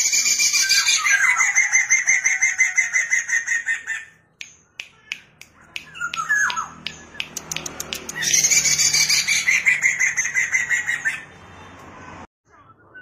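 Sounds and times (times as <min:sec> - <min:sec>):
sharp clicks: 0:04.4 - 0:08.4.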